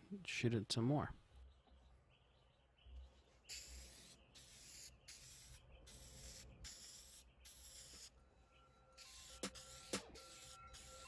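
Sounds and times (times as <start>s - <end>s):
spray can hissing: 3.5s - 8.1s, 9.0s - 11.0s.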